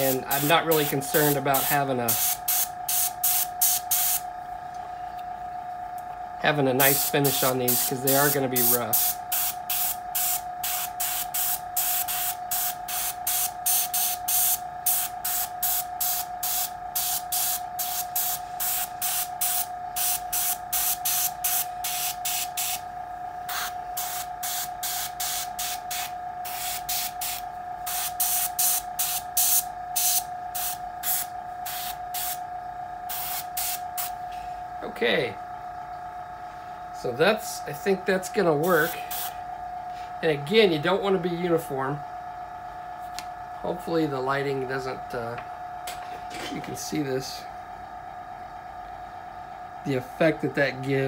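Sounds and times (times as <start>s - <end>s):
airbrush spraying in hissing spurts: 0.0s - 4.2s, 6.8s - 22.8s, 23.5s - 32.4s, 33.1s - 34.2s, 38.7s - 39.4s.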